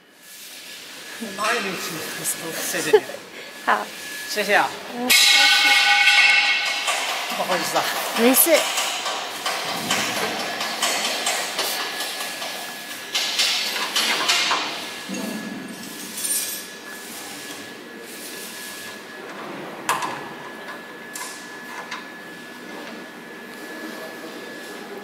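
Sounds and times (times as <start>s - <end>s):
metal knocks and clatter: 5.1s - 16.4s.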